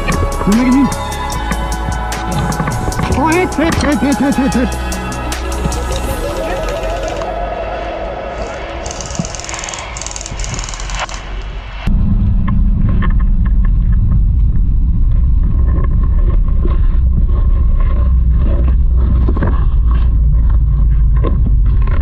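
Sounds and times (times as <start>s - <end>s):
vehicle engine and road rumble: 9.0s - 22.0s.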